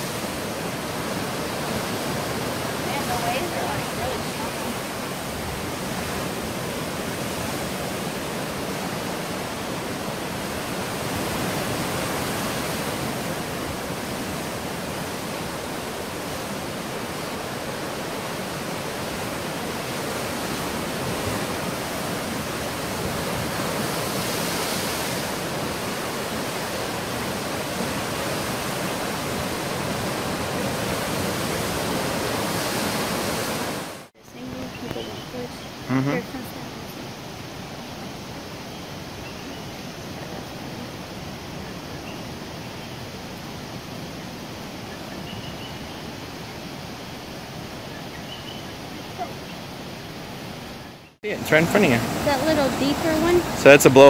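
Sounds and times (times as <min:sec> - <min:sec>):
surf breaking over rocks: 0:00.0 - 0:35.1, 0:51.2 - 0:54.0.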